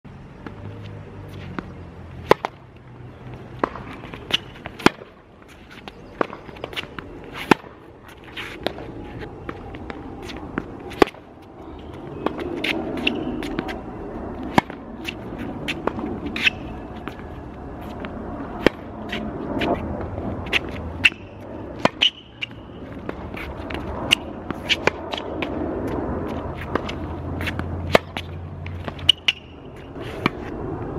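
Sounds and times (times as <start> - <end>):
tennis ball bouncing: 0.4 - 30.9
racquet hitting tennis ball: 1.5 - 2.6, 3.5 - 5.2, 5.8 - 13.8, 14.4 - 30.5
footsteps scuffing on court: 22.4 - 29.1.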